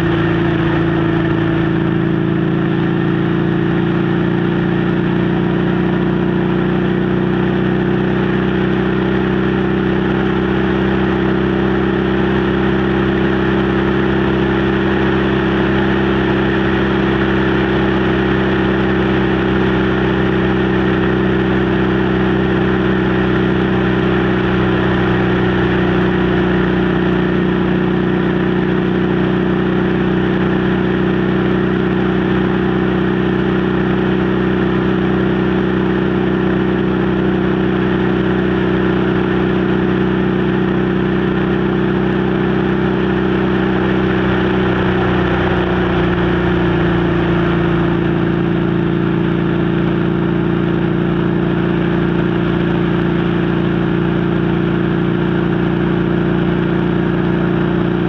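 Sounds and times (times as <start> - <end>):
motorcycle engine cruising: 0.0 - 58.0.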